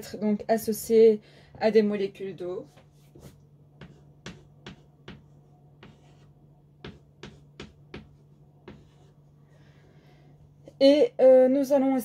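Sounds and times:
chalk tapping on blackboard: 0:02.7 - 0:09.2
chalk scratching: 0:02.7 - 0:09.3.

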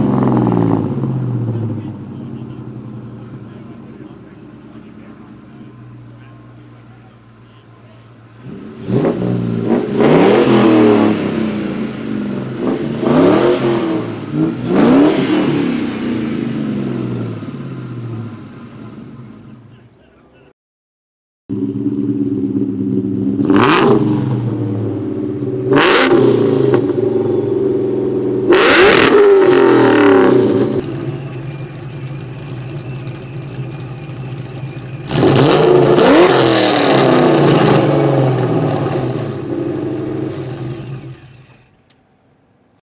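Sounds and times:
car exhaust idling and revving: 0:00.0 - 0:20.1, 0:21.5 - 0:41.9.

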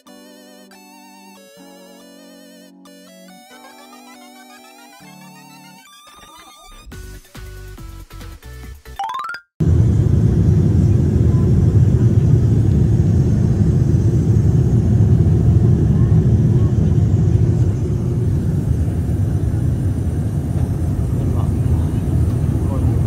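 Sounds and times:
airliner cabin rumble: 0:09.6 - 0:23.0.

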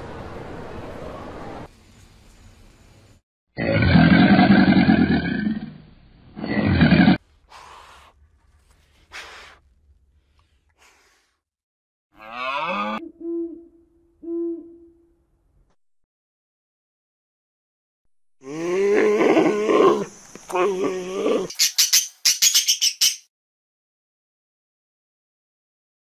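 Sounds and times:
alligator bellowing: 0:03.6 - 0:05.8
owl call bending in pitch: 0:13.0 - 0:15.1.

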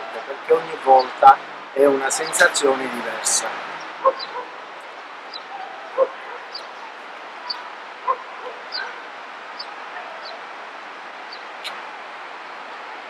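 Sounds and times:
outdoor background noise: 0:00.0 - 0:13.0
dog barking: 0:04.0 - 0:04.6, 0:05.4 - 0:06.6, 0:07.4 - 0:09.0.

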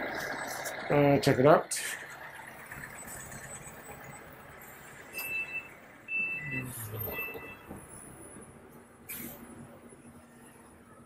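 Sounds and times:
traffic hum: 0:00.0 - 0:11.0
short high electronic beeps: 0:05.1 - 0:07.7.

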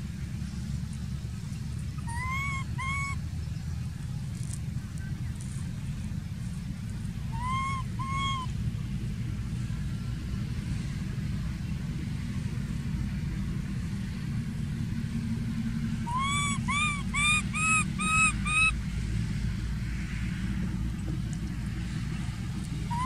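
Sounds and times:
baby monkey cooing: 0:02.0 - 0:03.2, 0:07.3 - 0:08.5, 0:16.1 - 0:18.8.

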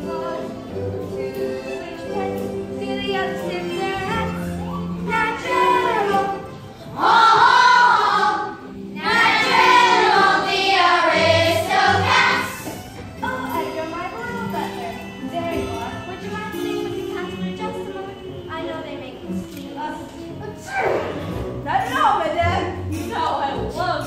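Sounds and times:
instrumental accompaniment: 0:00.0 - 0:24.0
children singing: 0:04.0 - 0:12.7.

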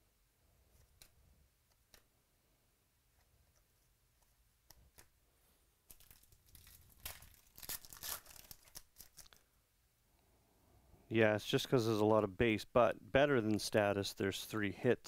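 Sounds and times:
wrapper ripping and crinkling: 0:05.9 - 0:09.4.

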